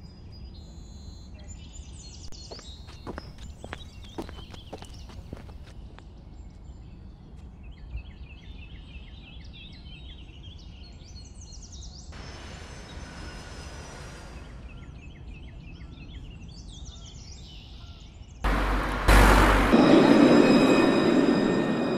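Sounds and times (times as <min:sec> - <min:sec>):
birds chirping: 0:00.7 - 0:06.8
low outdoor rumble: 0:18.5 - 0:21.9
rush of noise: 0:18.5 - 0:21.9.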